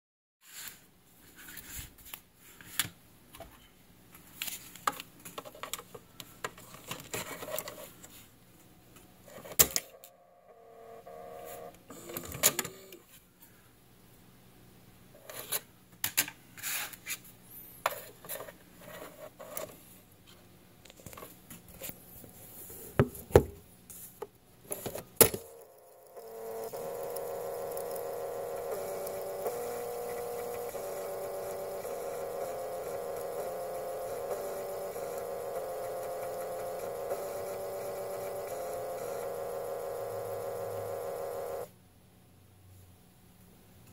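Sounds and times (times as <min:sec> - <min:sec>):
floppy drive head clicking: 0:25.4 - 0:41.7
spindle motor humming: 0:25.4 - 0:41.7.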